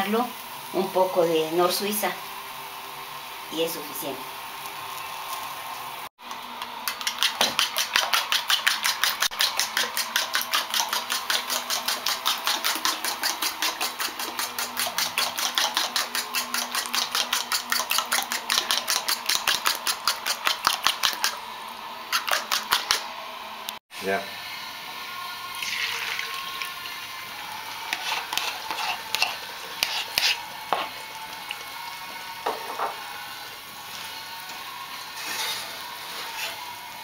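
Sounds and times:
fork beating eggs in bowl: 6.8 - 21.4, 22.1 - 23.1, 27.8 - 31.0.

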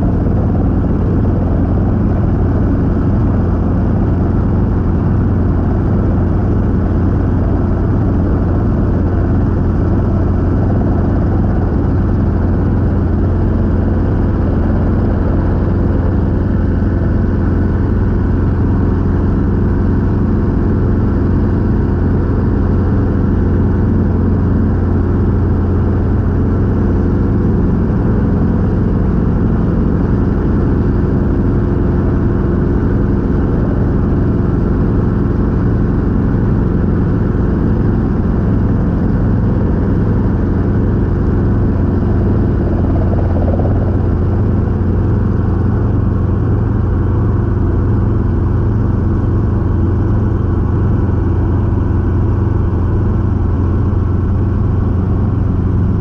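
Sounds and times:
helicopter engine and rotors: 0.0 - 56.0.

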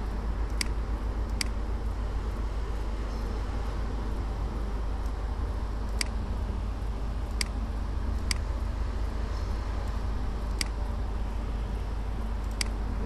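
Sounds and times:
low electrical hum and hiss: 0.0 - 13.0
computer mouse clicks: 0.5 - 1.6, 5.9 - 6.2, 7.3 - 7.6, 9.8 - 10.8, 12.4 - 12.8.

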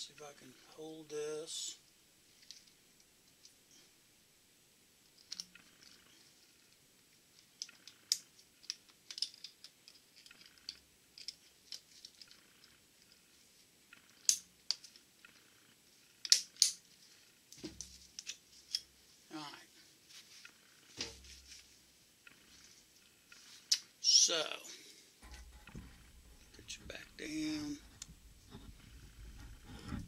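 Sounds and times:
sharp metal clicks: 16.2 - 16.8
dull knock: 25.2 - 26.2.

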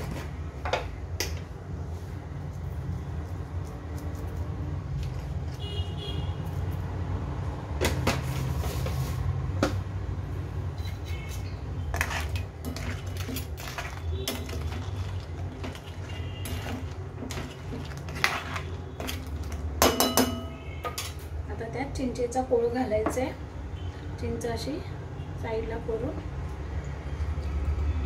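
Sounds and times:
metal spoon scraping a wok: 10.7 - 19.7.

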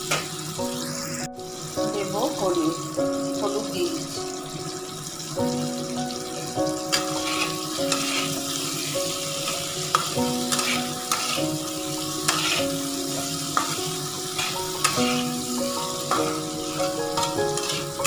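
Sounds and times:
potatoes sizzling in oil: 0.0 - 18.0
simple background melody: 0.0 - 18.0
spatula scraping a pan: 6.9 - 18.0.

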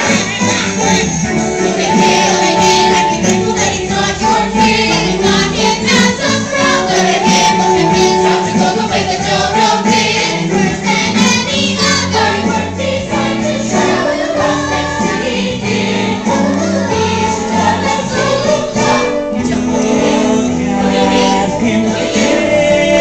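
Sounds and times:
accompaniment with bass line: 0.0 - 23.0
young voices singing in unison: 0.0 - 23.0.

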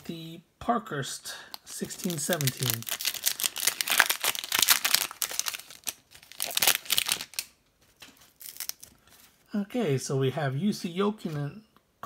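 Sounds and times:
plastic wrapper crinkling and tearing: 1.5 - 9.4.

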